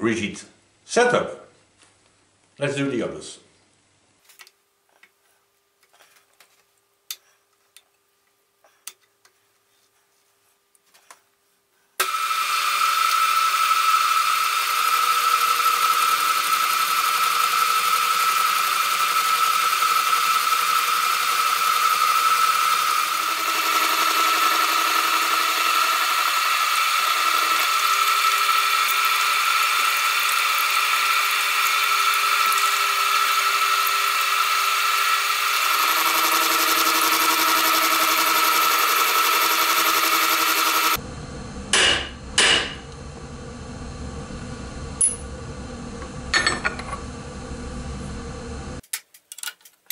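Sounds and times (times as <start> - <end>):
milling machine whining: 12.0 - 48.8.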